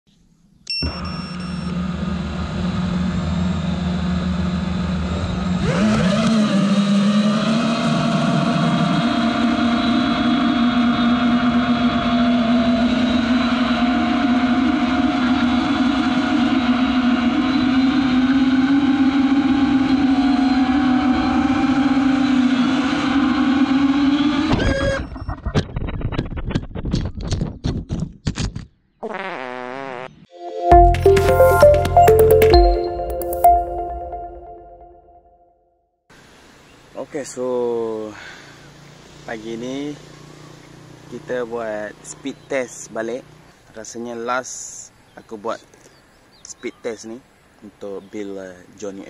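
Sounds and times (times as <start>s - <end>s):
quadcopter motors whining: 0.8s - 24.6s.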